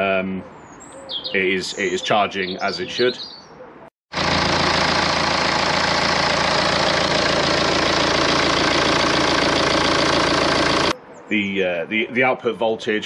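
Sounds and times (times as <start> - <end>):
diesel engine idling: 4.1 - 11.0.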